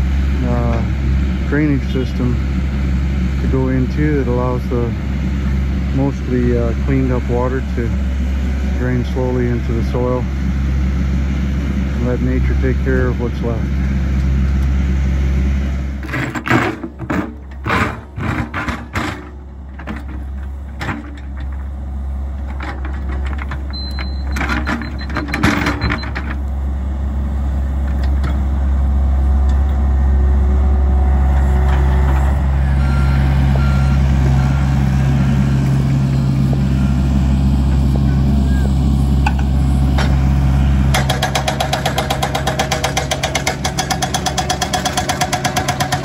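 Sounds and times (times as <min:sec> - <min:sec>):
excavator diesel engine running: 0:00.0 - 0:46.0
faint short beeps: 0:23.7 - 0:25.2.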